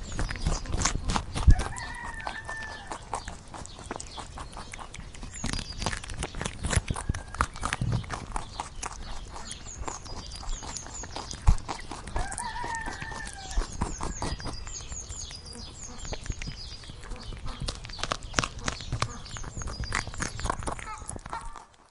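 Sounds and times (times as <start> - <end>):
rabbit munching grass: 0.0 - 21.9
small birds chirping: 0.0 - 21.9
faint rooster crowing: 1.5 - 3.0, 6.9 - 7.6, 12.1 - 14.4.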